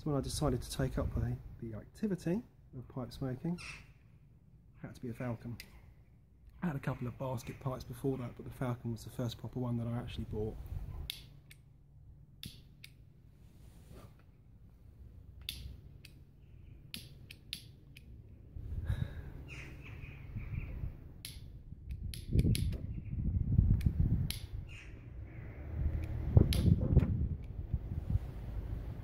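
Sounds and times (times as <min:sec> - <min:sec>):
wind buffeting microphone: 0:18.6 - 0:29.0.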